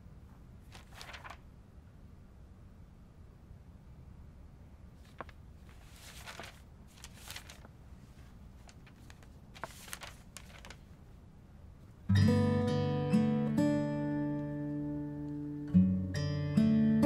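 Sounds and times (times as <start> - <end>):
low room hum: 0.0 - 13.2
short rustles: 5.0 - 10.9.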